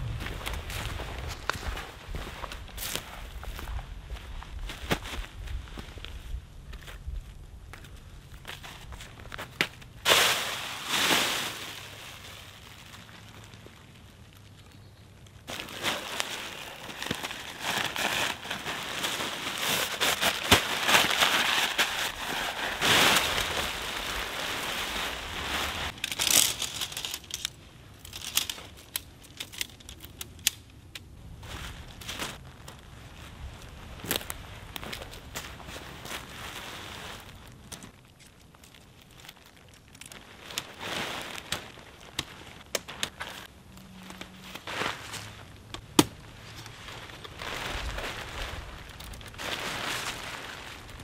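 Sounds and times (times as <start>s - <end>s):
plastic sheet crinkling and rustling: 15.4s - 30.2s, 31.4s - 45.5s, 46.4s - 51.0s.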